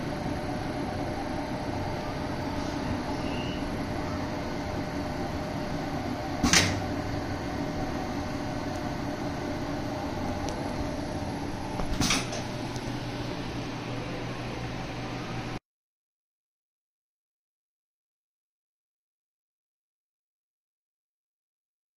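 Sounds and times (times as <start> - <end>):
machine mechanical hum: 0.0 - 15.6.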